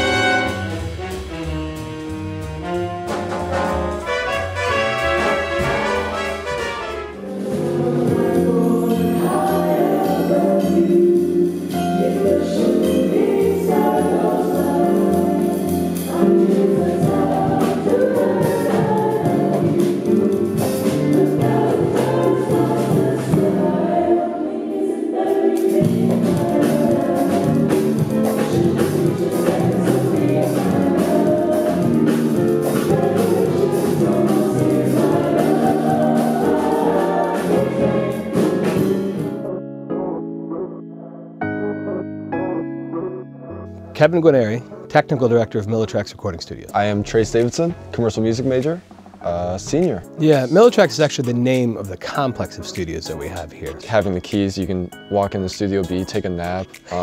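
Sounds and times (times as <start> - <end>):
instrumental accompaniment with beat: 0.0 - 24.2, 25.2 - 40.6
vocal ensemble singing: 2.6 - 41.0.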